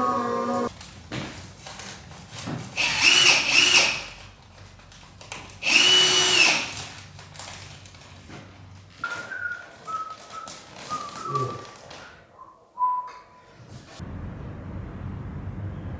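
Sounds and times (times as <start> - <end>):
power drill running: 2.8 - 4.2, 5.6 - 6.8.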